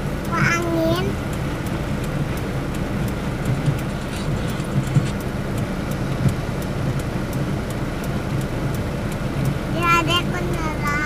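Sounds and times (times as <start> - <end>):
car engine and road hum: 0.0 - 11.0
raindrops ticking on windshield: 0.0 - 11.0.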